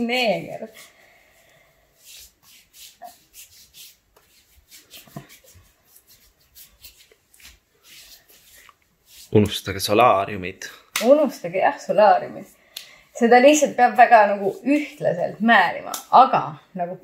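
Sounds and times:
hand rubbing cream on skin: 1.9 - 9.8.

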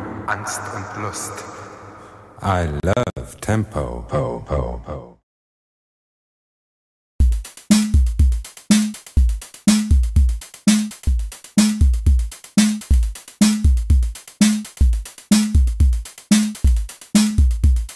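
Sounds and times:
drum machine beat: 7.2 - 17.9.

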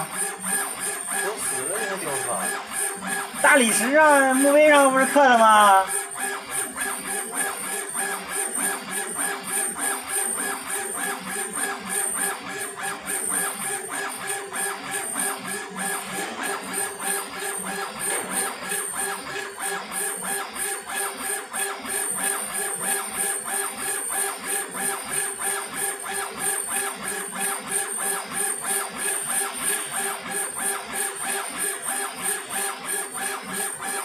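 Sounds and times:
laser engraver machine whine: 0.0 - 34.0
fast even chatter: 3.4 - 5.9.

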